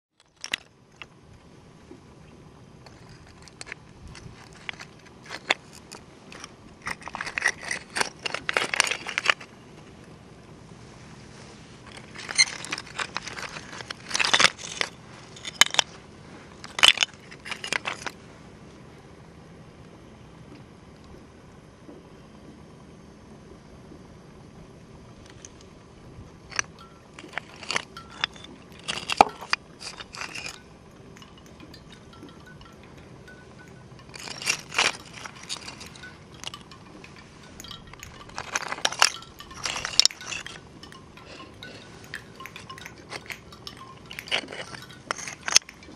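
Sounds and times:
oyster shells clicking: 0:26.5 - 0:45.9.

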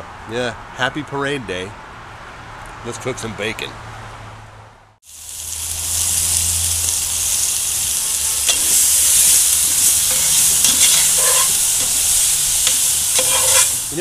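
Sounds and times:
bacon sizzling in a pot: 0:05.0 - 0:14.0.

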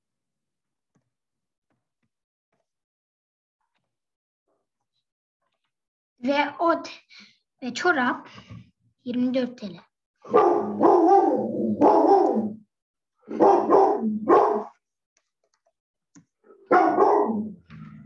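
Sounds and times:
dog barking: 0:10.2 - 0:12.6, 0:13.3 - 0:14.8, 0:16.5 - 0:17.6.

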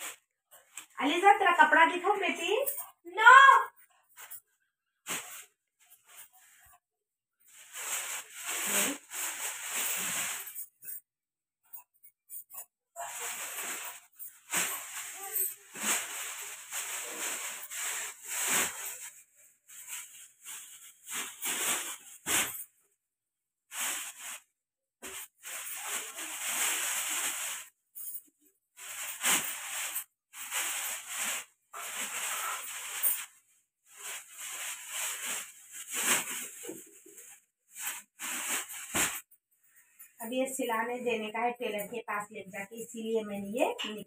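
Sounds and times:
plastic bag crinkling: 0:07.5 - 0:11.0, 0:13.0 - 0:22.7, 0:28.8 - 0:39.4.

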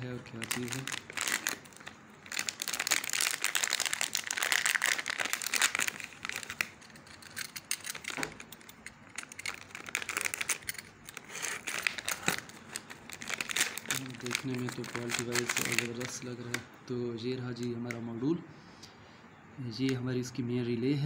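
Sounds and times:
plastic bag crinkling: 0:00.0 - 0:16.6.

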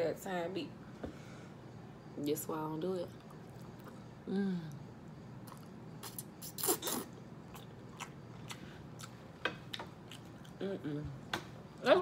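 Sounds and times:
wet chewing mouth clicks: 0:05.4 - 0:10.6
person humming: 0:10.6 - 0:11.2.

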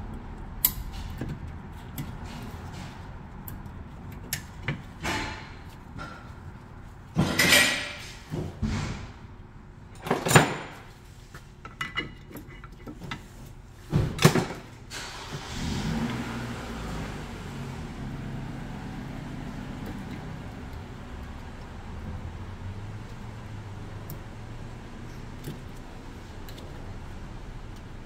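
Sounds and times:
light metal clicks and scrapes: 0:10.7 - 0:13.6.

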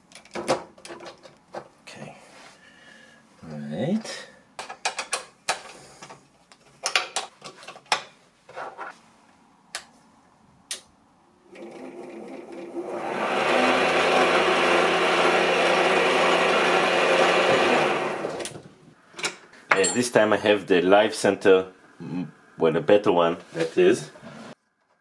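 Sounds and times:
lathe motor whirring: 0:11.5 - 0:18.5.

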